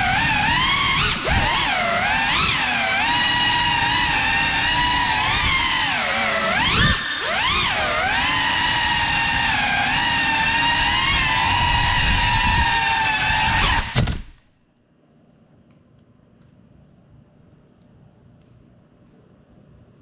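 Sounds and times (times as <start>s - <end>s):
drone motors whining: 0.0s - 14.4s.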